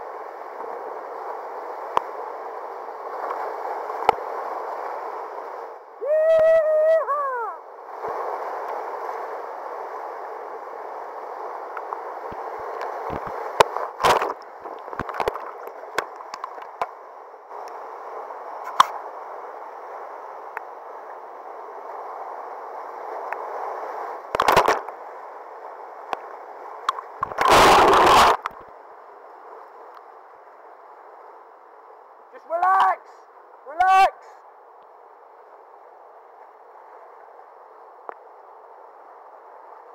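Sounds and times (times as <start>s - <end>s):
person yelling: 6.0s - 7.6s, 32.4s - 34.4s
water crashing over boat: 27.3s - 28.4s.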